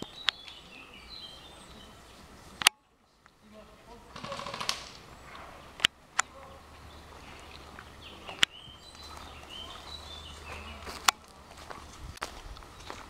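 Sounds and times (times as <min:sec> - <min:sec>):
birds chirping: 0:00.0 - 0:13.0
sharp cracks: 0:04.1 - 0:06.4.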